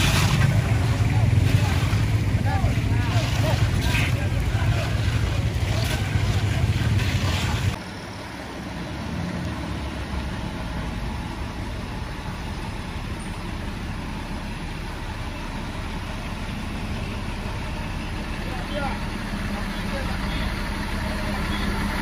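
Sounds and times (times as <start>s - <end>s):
truck engines idling: 0.0s - 22.0s.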